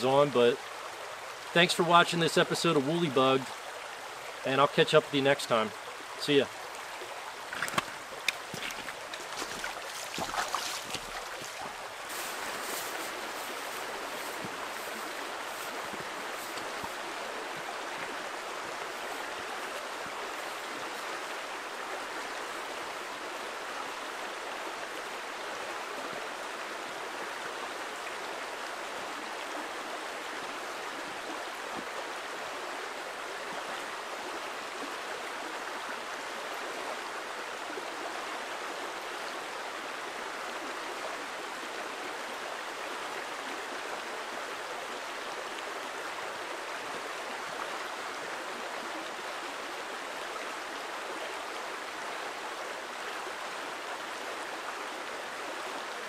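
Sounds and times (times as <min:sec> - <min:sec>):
stream rushing over stones: 0:00.0 - 0:56.0.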